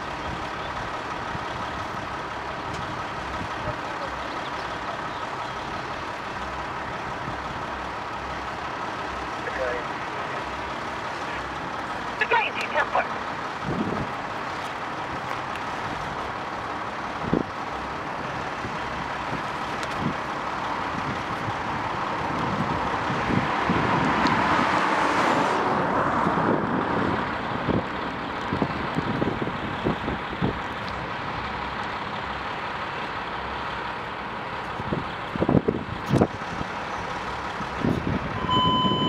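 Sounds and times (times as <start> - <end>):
road traffic noise: 0.0 - 39.0
vehicle passing close by: 20.8 - 27.9.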